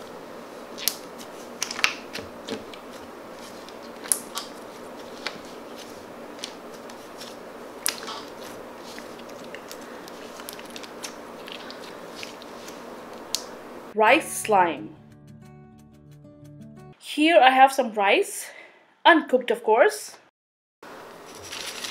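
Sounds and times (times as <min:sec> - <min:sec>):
slime crunching and crackling: 0:07.2 - 0:12.6.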